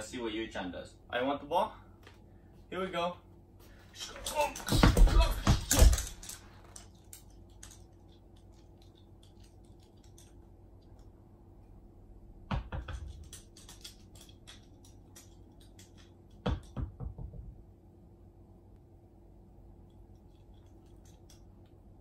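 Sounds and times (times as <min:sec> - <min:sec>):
dog claws ticking on wood floor: 0:12.8 - 0:16.8.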